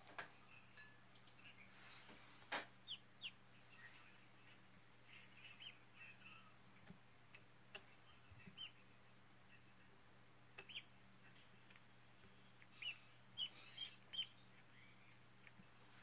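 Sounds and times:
ducklings peeping: 1.3 - 6.5, 7.8 - 8.9, 10.5 - 11.0, 12.5 - 16.0.

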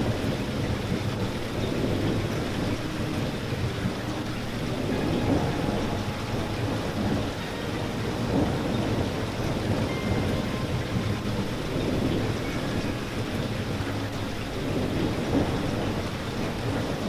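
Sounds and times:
low rumble: 0.0 - 17.0
rain pattering: 0.0 - 17.0.

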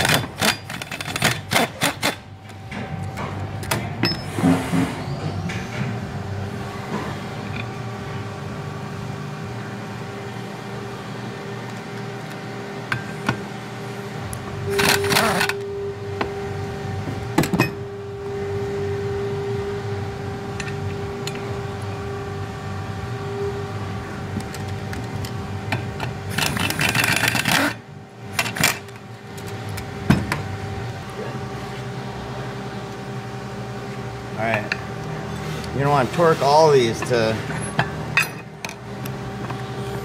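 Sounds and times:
impact wrench bursts: 0.0 - 2.2
steady hum: 0.0 - 40.0.

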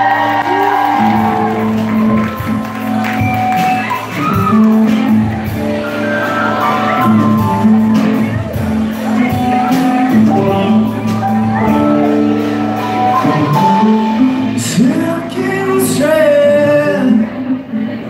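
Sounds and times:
crowd shouting: 0.0 - 14.0
live rock band playing: 0.0 - 17.9.

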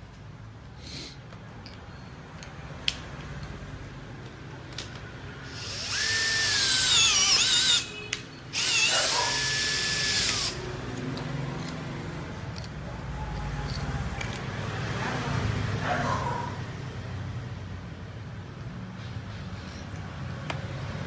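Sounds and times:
tool handling clicks: 1.3 - 3.6, 4.2 - 5.1, 10.2 - 14.6
cordless drill motor whining: 5.4 - 10.6.

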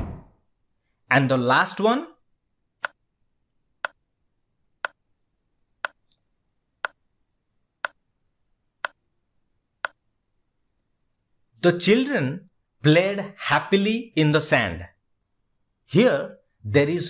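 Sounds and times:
timer ticking: 5.8 - 6.1.

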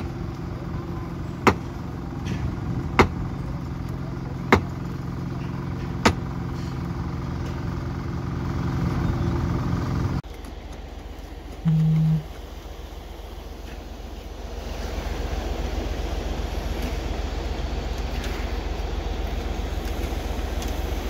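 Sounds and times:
machine engine running: 0.0 - 21.0
steady background noise: 0.0 - 21.0.

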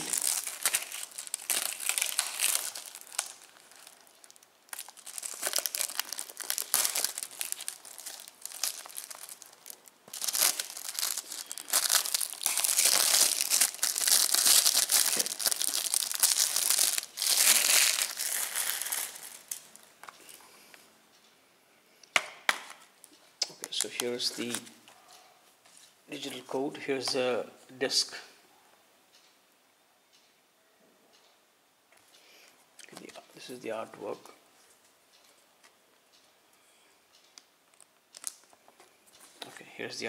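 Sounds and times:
plastic shrink wrap crinkling: 0.0 - 20.2, 37.7 - 39.2.

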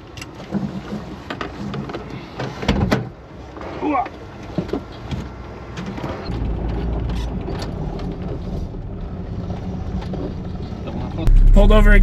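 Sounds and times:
pickup engine running: 8.0 - 12.0.

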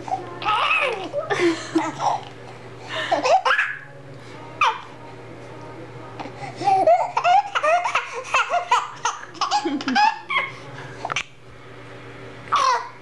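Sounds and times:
baby laughing: 0.4 - 2.3, 3.1 - 3.8, 6.6 - 10.6, 12.5 - 13.0.

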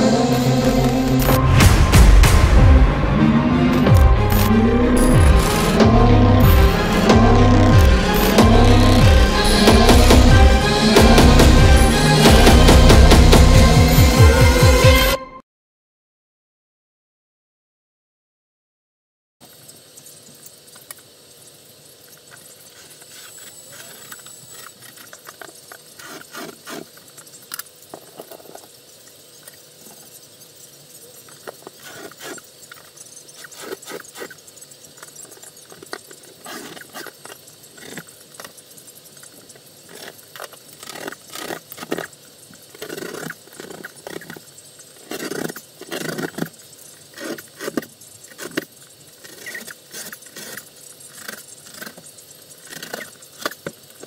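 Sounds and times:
steady hiss: 19.4 - 54.0.

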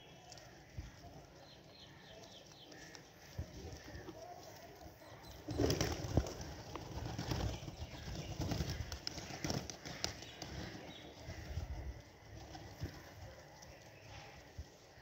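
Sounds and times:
pigeon wings flapping: 5.4 - 11.5.

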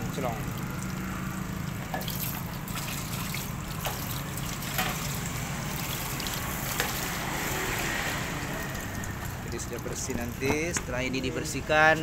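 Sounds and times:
water splashing over steel: 0.5 - 10.8.

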